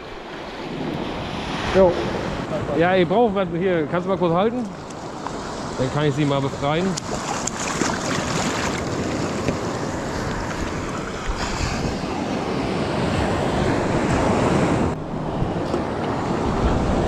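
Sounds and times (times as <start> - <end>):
waves washing on shore: 0.0 - 17.0
wind rushing over microphone: 5.0 - 17.0.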